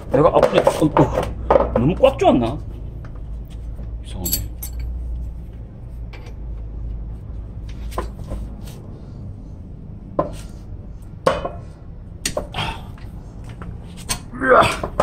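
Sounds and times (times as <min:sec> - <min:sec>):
low steady rumble: 0:02.7 - 0:07.7
metal tool clicks and knocks: 0:04.2 - 0:04.9.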